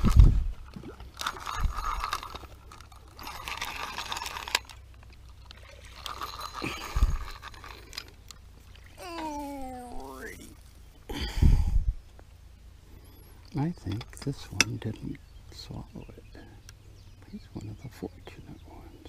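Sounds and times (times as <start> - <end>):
rustling and scraping handling: 1.2 - 8.4.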